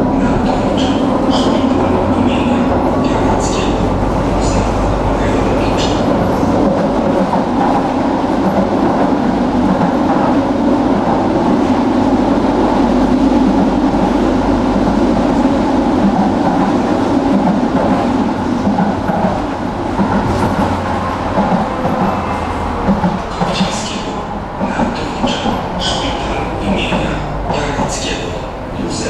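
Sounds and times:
tram wheels rumbling on rails: 0.0s - 29.0s.

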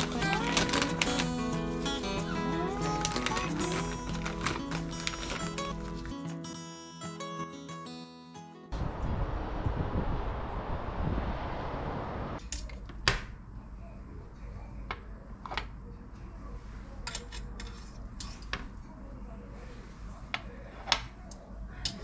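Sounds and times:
background music: 0.0s - 8.8s.

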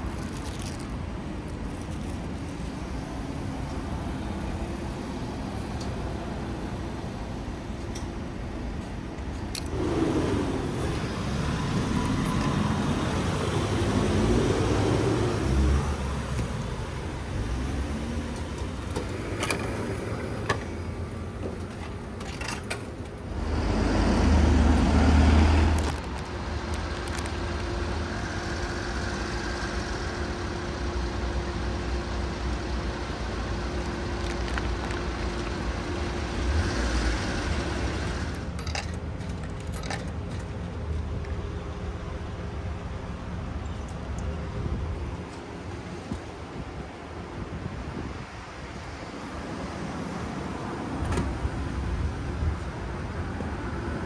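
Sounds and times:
road traffic: 0.0s - 54.0s
plastic pouch tearing: 25.7s - 26.3s.

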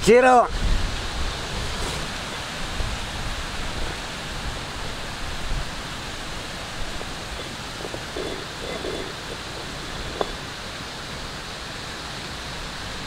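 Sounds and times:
even hiss: 0.0s - 13.0s
irregular low rumble: 5.8s - 10.8s.

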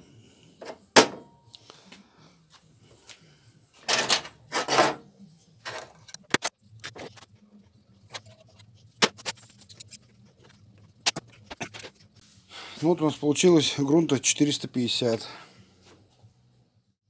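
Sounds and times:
rustling scrapes: 4.5s - 5.0s.

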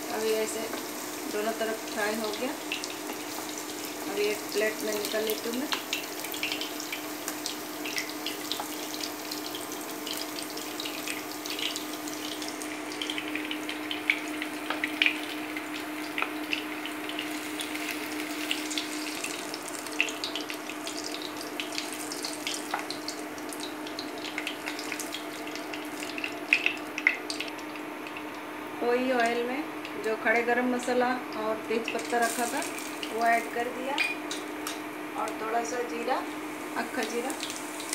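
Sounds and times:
cheese sizzling in hot oil: 0.0s - 31.0s, 31.6s - 37.9s.

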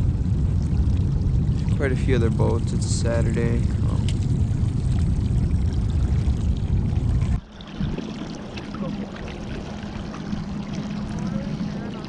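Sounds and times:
outboard motor running: 0.0s - 12.0s
water churning and splashing: 0.0s - 12.0s
water lapping: 0.0s - 12.0s.

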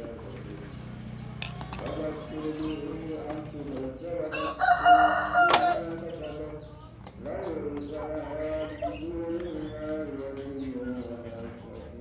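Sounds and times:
wavering bird calls: 0.0s - 12.0s
rooster crowing: 4.3s - 5.9s.

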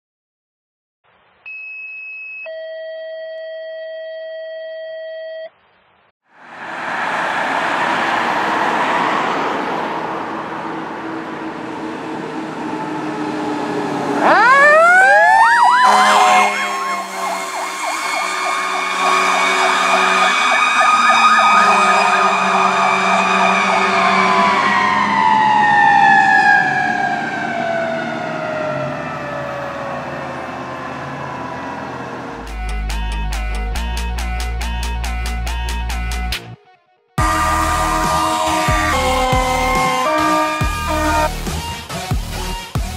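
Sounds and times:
fire engine passing: 6.3s - 33.8s, 37.2s - 41.9s
mechanical siren wailing: 10.6s - 32.5s, 37.2s - 41.4s.

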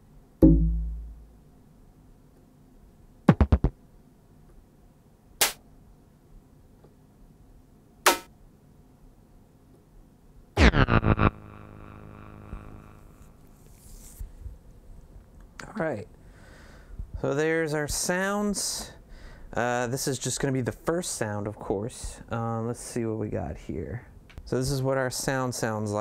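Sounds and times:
synth drum hits: 0.4s - 1.3s, 10.6s - 13.0s
held synth note: 10.6s - 13.5s.

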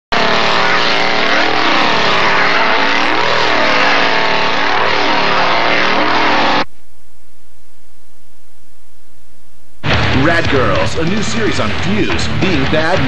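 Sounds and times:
chainsaw engine revving: 0.1s - 6.7s.

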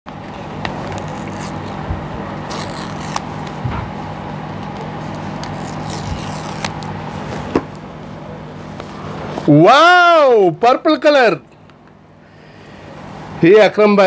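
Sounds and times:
steady low hum: 0.1s - 14.0s
paper tear strips ripping: 0.8s - 1.8s, 2.4s - 3.6s, 5.4s - 7.0s.

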